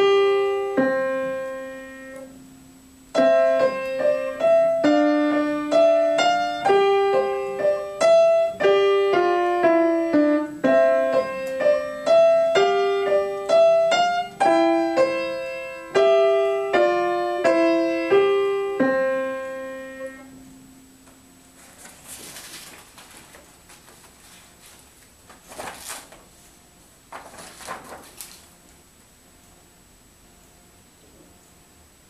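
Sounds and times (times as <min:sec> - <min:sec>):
slow upright piano piece: 0:00.0 - 0:23.7.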